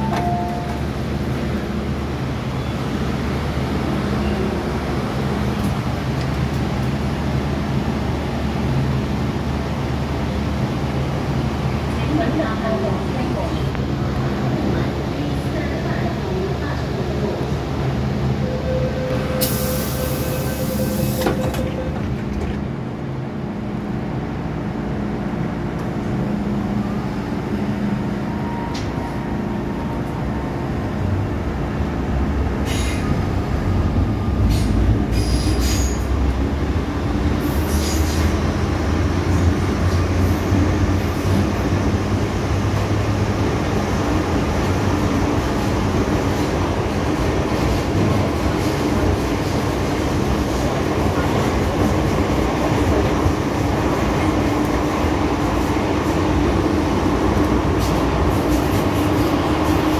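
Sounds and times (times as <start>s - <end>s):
door warning tone: 0.0s - 0.9s
train running noise: 0.0s - 59.9s
train doors hissing closed: 19.2s - 22.2s, 32.6s - 33.2s, 34.4s - 36.2s, 57.7s - 59.9s.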